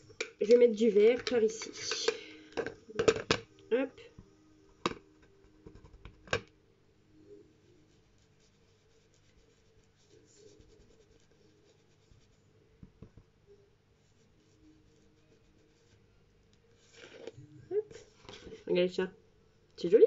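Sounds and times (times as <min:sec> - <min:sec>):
rubbing and scratching on paper: 0:07.6 - 0:13.1, 0:13.9 - 0:17.4.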